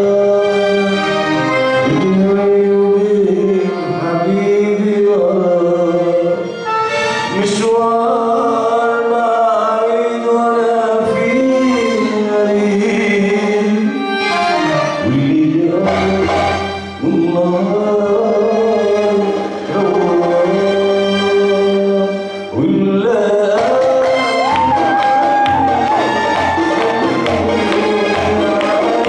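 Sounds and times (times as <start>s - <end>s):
man singing: 0.0s - 6.6s, 7.2s - 29.0s
keyboard melody: 0.0s - 29.0s
darbuka drums: 15.9s - 16.8s, 23.5s - 29.0s.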